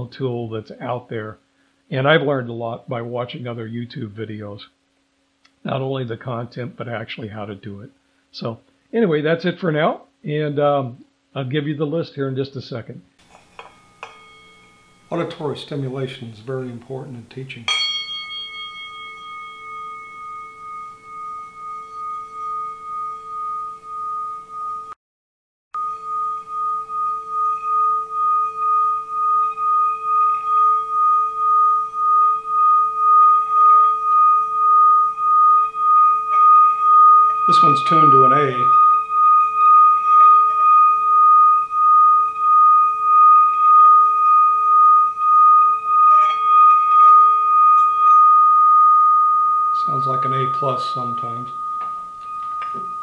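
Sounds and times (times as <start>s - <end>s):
striker scratching: 13.2s - 24.9s, 25.8s - 53.0s
mallet rubbing bowl rim: 13.2s - 25.0s, 25.8s - 53.0s
singing bowl ringing: 13.2s - 25.0s, 25.8s - 53.0s.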